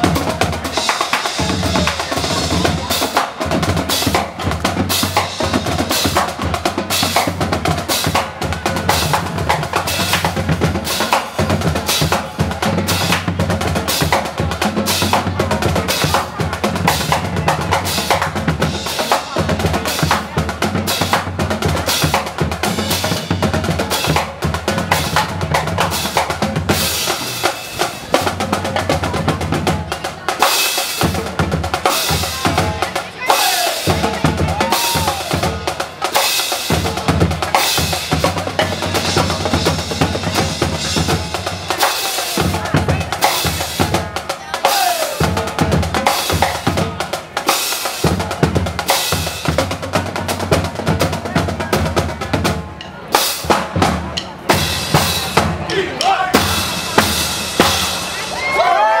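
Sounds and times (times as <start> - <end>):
marching bass drums: 0.0 - 59.0
snare and tenor drum rolls: 0.0 - 59.0.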